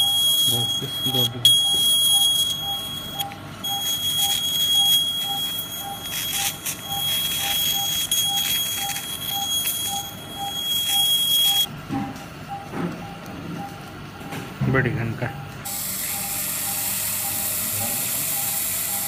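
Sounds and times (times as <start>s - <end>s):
electrosurgical unit high tone: 0.0s - 11.7s
monitor short beeps: 0.0s - 11.7s.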